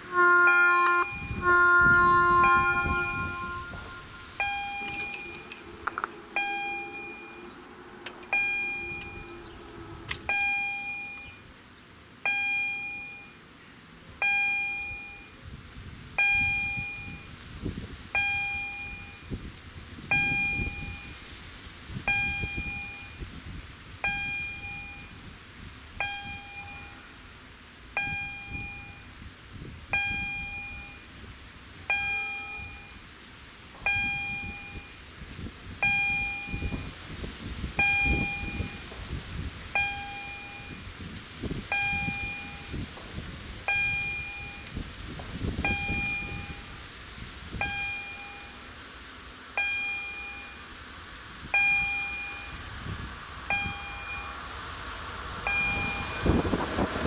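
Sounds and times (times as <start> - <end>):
level crossing warning bell: 0.0 - 11.5, 12.2 - 13.4, 14.2 - 15.4, 16.2 - 17.4, 18.2 - 19.4, 20.1 - 21.3, 22.1 - 23.3, 24.0 - 25.2, 26.0 - 27.2, 28.0 - 29.2, 29.9 - 31.1, 31.9 - 33.1, 33.8 - 35.0, 35.8 - 37.0, 37.8 - 39.0, 39.7 - 40.9, 41.7 - 42.9, 43.6 - 44.8, 45.6 - 46.8, 47.6 - 48.7, 49.6 - 50.7, 51.5 - 52.8, 53.5 - 54.7, 55.4 - 56.6
low steady hum: 0.0 - 15.6, 43.6 - 57.0.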